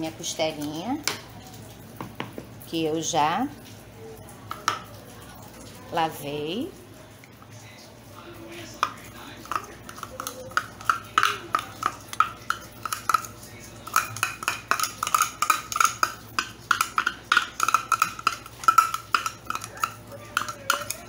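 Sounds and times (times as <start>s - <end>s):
metal spoon scraping bowl: 8.8s - 21.0s.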